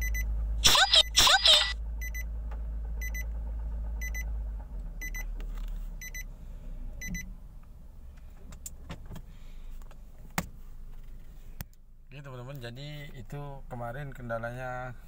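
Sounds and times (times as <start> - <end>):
car warning chime beeps: 0.0 - 2.3, 3.0 - 3.3, 4.0 - 4.3, 5.0 - 5.3, 6.0 - 6.3, 7.0 - 7.3
car engine hum: 0.0 - 15.0.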